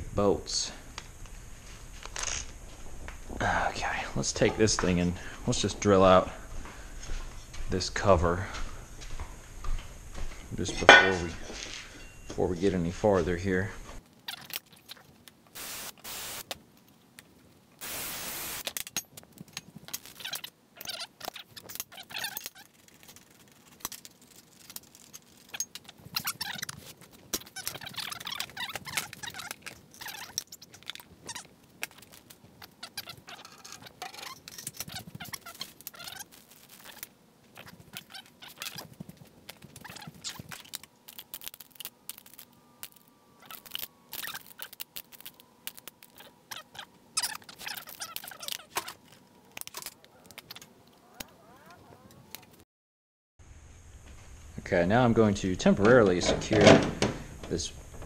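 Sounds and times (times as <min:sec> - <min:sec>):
clinks of tools and metal parts: 0:10.7 - 0:12.7, 0:18.6 - 0:31.1, 0:31.8 - 0:38.8.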